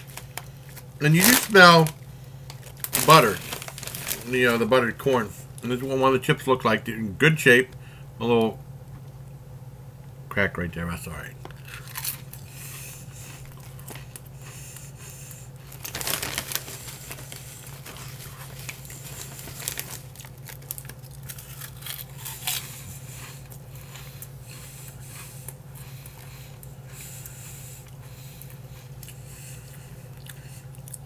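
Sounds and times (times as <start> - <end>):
chip bag crinkling: 0.0 - 6.0, 11.5 - 14.8, 15.6 - 24.3
steady low hum: 0.0 - 31.0
chip being bitten and chewed: 11.5 - 31.0.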